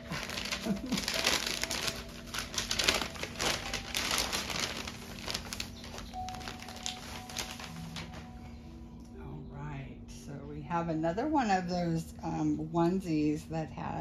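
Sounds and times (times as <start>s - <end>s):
paper crinkling: 0.0s - 8.5s.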